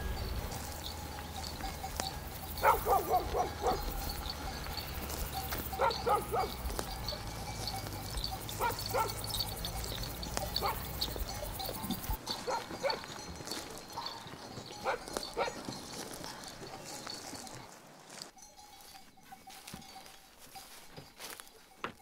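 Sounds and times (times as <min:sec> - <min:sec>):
animal calling in sharp calls: 0:00.0 - 0:13.1.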